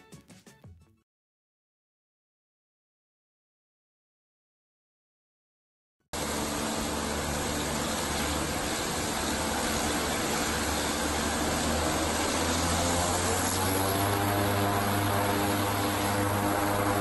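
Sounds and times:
turboprop engines droning: 6.2 - 17.0.

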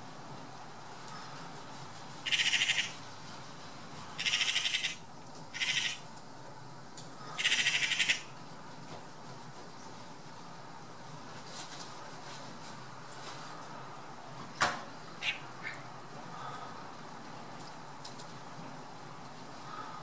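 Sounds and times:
magpies chattering: 2.3 - 3.0, 4.2 - 5.0, 5.6 - 6.0, 7.4 - 8.3, 15.2 - 15.8.

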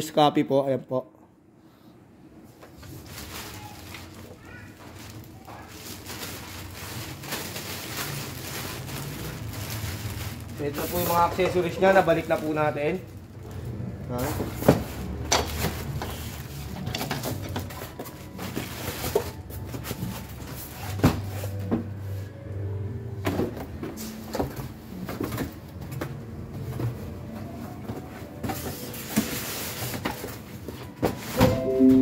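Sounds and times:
knocks and scrapes of packing: 2.6 - 12.2, 14.2 - 22.3, 23.2 - 31.7
plastic bag rustling: 2.6 - 21.7, 27.9 - 31.7.

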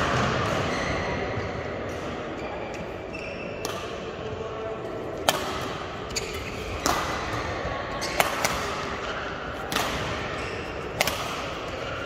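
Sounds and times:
sports hall background noise: 0.0 - 12.0
rackets hitting shuttlecock: 3.5 - 4.3, 5.2 - 12.0.

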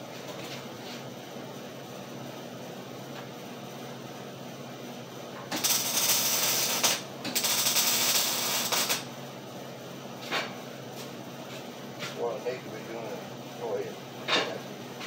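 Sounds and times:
low shop hum: 0.0 - 15.0
crackling welding arc: 5.5 - 9.1.

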